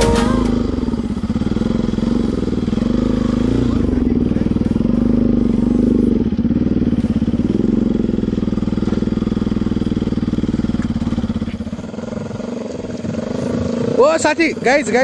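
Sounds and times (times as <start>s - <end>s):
motorcycle engine at low revs: 0.0s - 15.0s.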